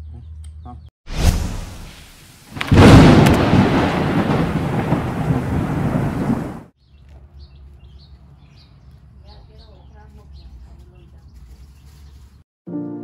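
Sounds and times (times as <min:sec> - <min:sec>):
thunder-like crash: 0:01.1 - 0:06.7.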